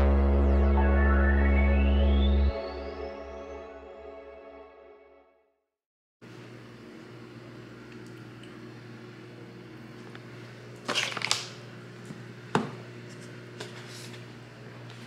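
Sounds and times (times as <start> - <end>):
steady low hum: 0.0 - 4.2.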